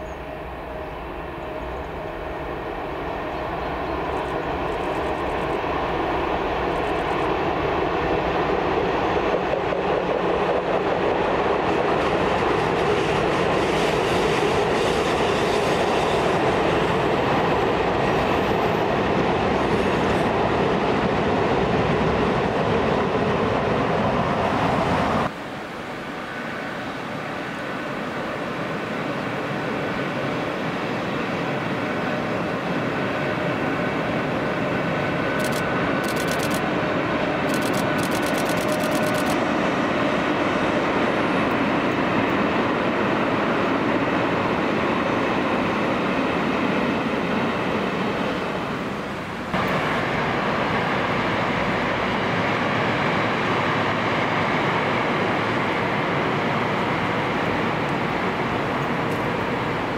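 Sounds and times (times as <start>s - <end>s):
train rumbling by: 0.0s - 59.9s
sharp clicks of train wheels: 35.1s - 39.6s.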